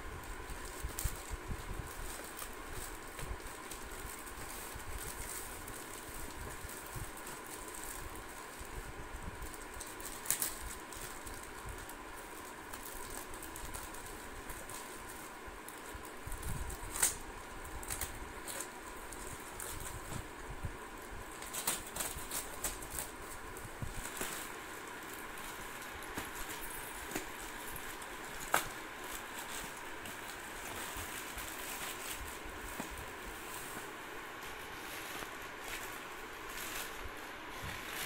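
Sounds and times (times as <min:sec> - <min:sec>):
plastic mailer bag crinkling: 0:00.1 - 0:20.4, 0:21.0 - 0:38.0.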